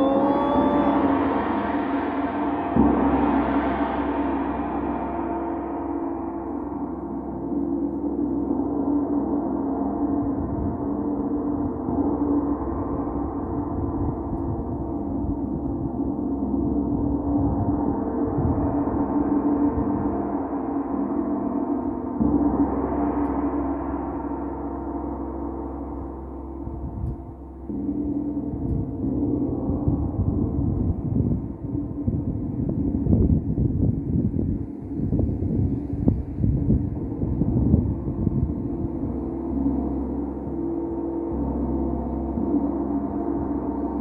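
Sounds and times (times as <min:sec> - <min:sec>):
gong ringing: 0:00.0 - 0:10.2.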